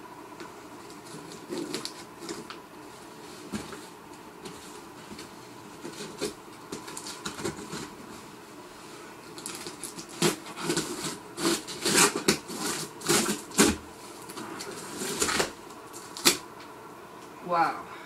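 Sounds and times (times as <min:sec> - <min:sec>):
cardboard flaps scraping and rustling: 0:00.8 - 0:08.4, 0:09.3 - 0:16.4
cardboard cracking: 0:00.9 - 0:02.6, 0:04.4 - 0:08.0, 0:09.3 - 0:16.4.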